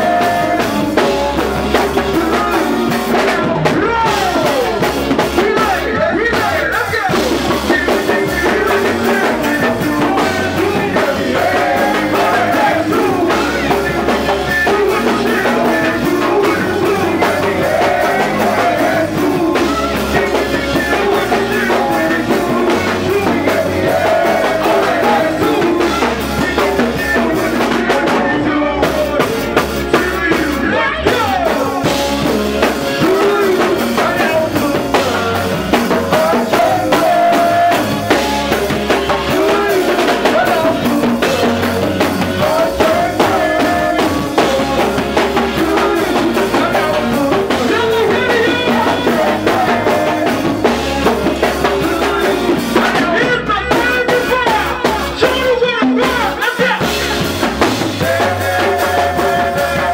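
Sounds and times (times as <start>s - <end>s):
bass line: 0.0s - 59.9s
drum kit beat: 0.0s - 59.9s
keyboards: 0.0s - 59.9s
person singing: 0.0s - 59.9s.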